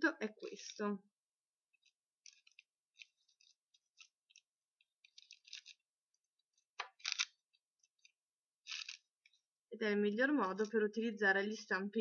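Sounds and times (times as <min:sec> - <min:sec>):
plastic cling film crinkling: 0:01.7 - 0:09.5.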